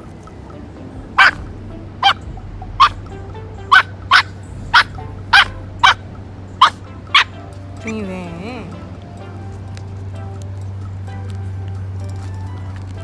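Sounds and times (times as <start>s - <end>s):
puppy yipping: 1.2s - 1.4s, 2.0s - 3.0s, 3.6s - 6.0s, 6.6s - 7.4s.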